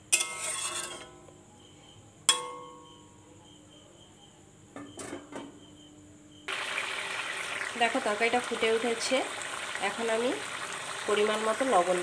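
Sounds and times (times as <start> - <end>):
metal utensil clinking on pan: 0.1 - 1.1, 2.3 - 2.8.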